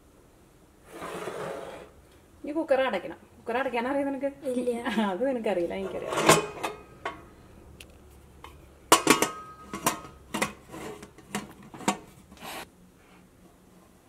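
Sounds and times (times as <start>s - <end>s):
metal lid clinking on pot: 8.9s - 12.0s.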